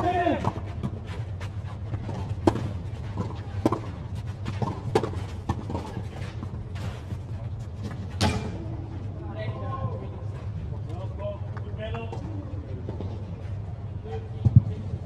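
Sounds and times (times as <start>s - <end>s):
tennis balls struck by rackets: 0.0s - 6.8s, 7.8s - 8.6s
steady low hum: 0.0s - 15.0s.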